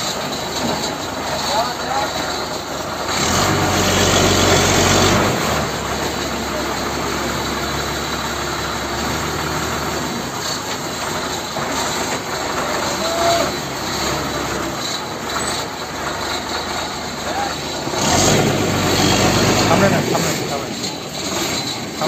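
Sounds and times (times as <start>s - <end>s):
engine idling: 0.0s - 22.0s.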